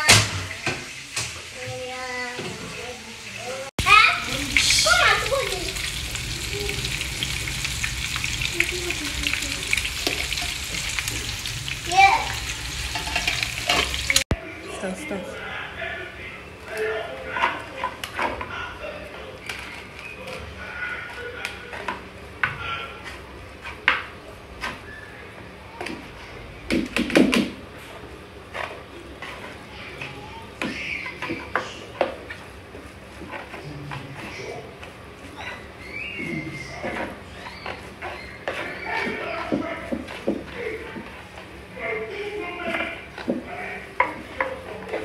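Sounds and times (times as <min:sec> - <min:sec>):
fish frying in hot oil: 0:00.1 - 0:14.3.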